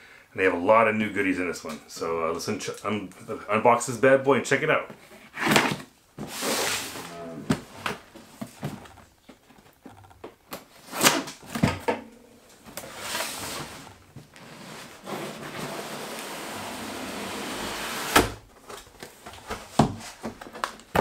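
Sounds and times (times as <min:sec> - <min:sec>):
cardboard scraping and rustling: 0:05.0 - 0:09.1, 0:12.7 - 0:20.7.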